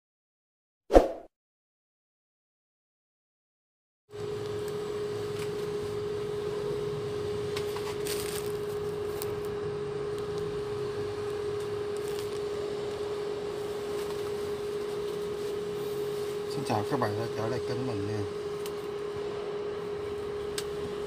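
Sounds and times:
induction cooktop humming: 4.2 - 21.0.

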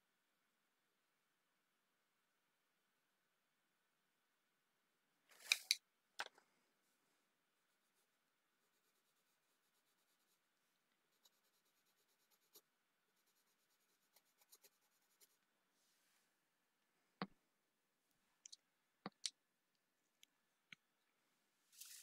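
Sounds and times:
pencil scratching on paper: 7.8 - 10.4, 11.1 - 15.4.

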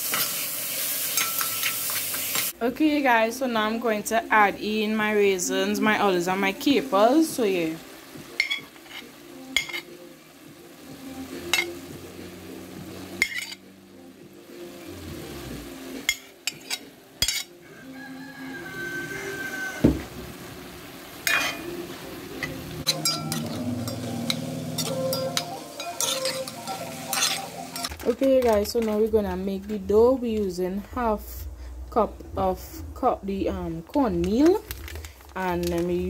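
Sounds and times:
faint sizzle: 0.0 - 36.0
spoon clinking against pot: 1.2 - 2.4, 8.4 - 9.0, 9.6 - 9.9, 16.1 - 17.6, 21.3 - 21.6, 22.9 - 28.0
metal spoon scraping pot: 13.2 - 13.6, 22.8 - 28.0.

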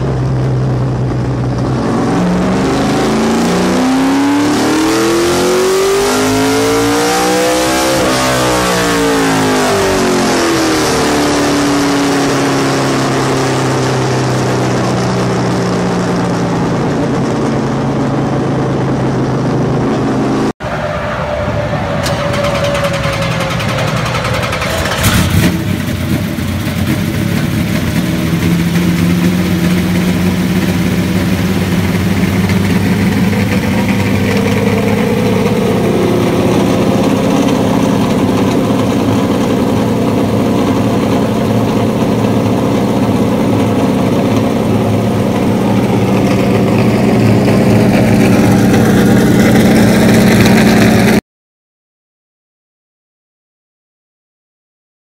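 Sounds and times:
loud engine burst: 0.0 - 51.2
race car engine idling: 21.9 - 51.1.

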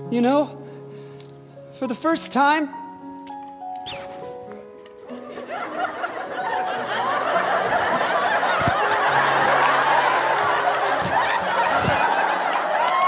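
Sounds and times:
audience laughing: 5.1 - 13.0.

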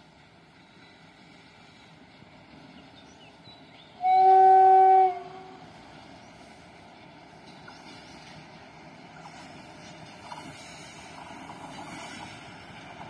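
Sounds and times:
locomotive horn blast: 4.0 - 5.6.

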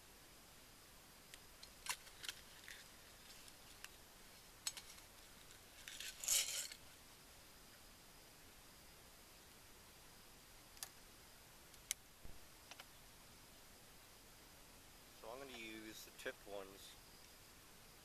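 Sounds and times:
handling clicks and rustles: 1.3 - 4.0, 4.6 - 6.8
rustling clatter: 4.6 - 6.8.

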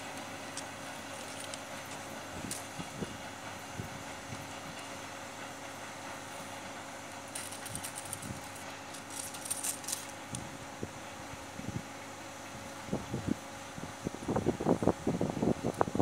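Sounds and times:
steady electrical hum: 0.0 - 16.0
faint metallic clinking: 7.3 - 10.2.

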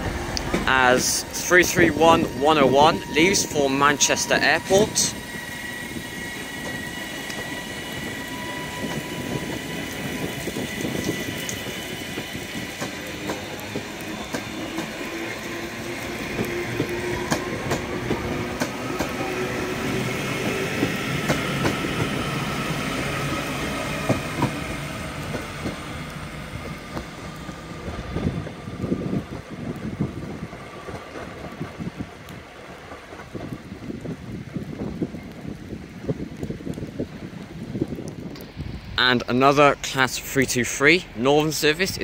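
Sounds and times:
train motor whine: 0.0 - 28.5
train wheels clicking over rail joints: 8.8 - 23.3, 23.9 - 28.6.

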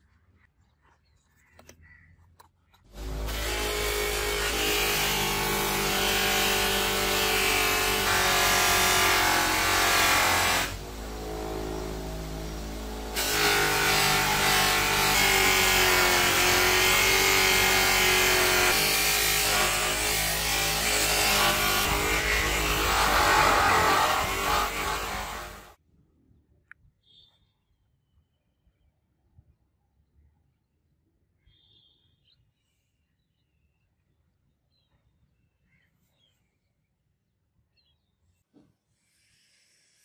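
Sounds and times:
bench grinder running: 2.9 - 25.8.

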